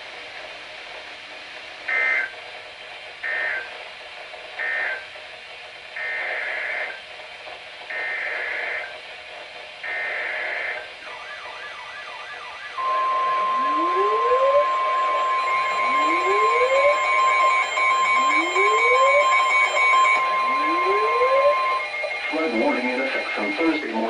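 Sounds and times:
steady tone: 12.0 - 24.0
raspy two-tone data bursts: 12.8 - 24.0
warbling alert tone: 12.8 - 24.0
radio hiss: 19.8 - 24.0.

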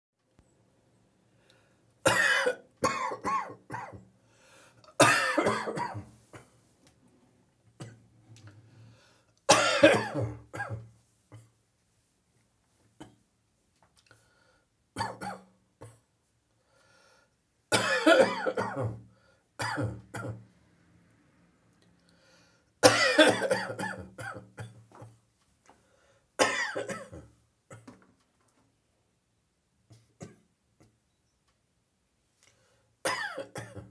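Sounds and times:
person coughing: 2.0 - 4.0, 5.0 - 6.6, 9.5 - 11.5, 15.0 - 16.0, 17.7 - 19.0, 19.6 - 20.4, 22.8 - 25.2, 26.4 - 28.0, 33.0 - 33.9.

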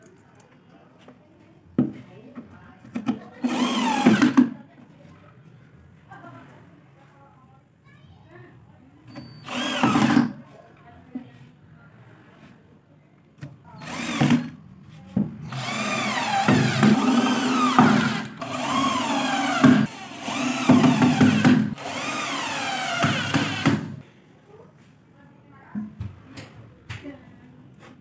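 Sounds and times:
cordless drill driving screws: 3.4 - 4.5, 9.4 - 10.4, 13.8 - 14.6, 15.5 - 24.0.

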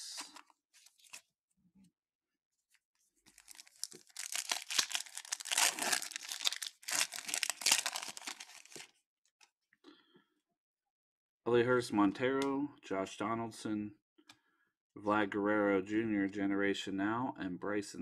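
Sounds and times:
foil crinkling and tearing: 3.3 - 8.9
foil wrapper crinkling and tearing: 3.3 - 8.9.

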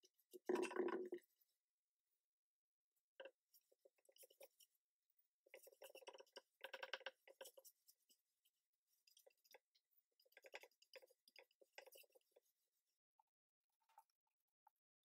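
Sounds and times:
paintbrush strokes on wood: 3.5 - 4.8, 5.5 - 9.6.

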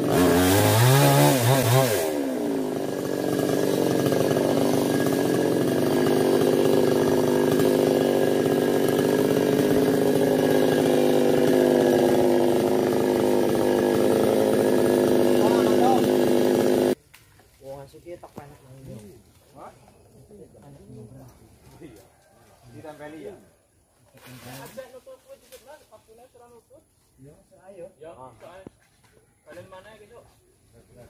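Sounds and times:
chainsaw revving: 0.0 - 17.0.

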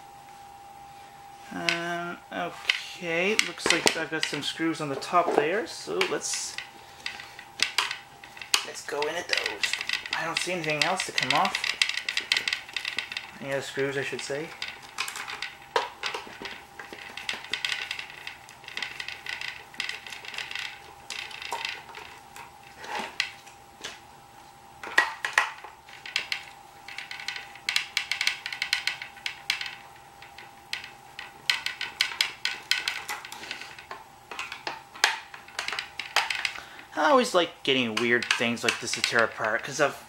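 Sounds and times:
faint hum: 0.0 - 40.0
screwdriver scraping clicks: 6.0 - 24.0.

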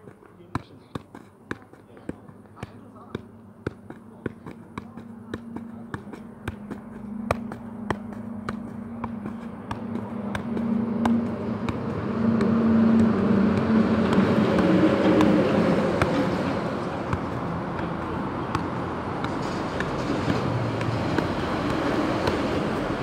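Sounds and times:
football taps on foot: 0.0 - 23.0
low hum with rushing noise: 5.1 - 23.0.

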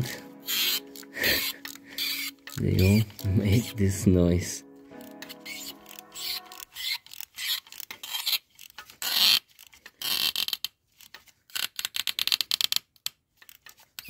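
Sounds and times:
glow plug grinding in threads: 0.4 - 3.3, 5.0 - 14.0.

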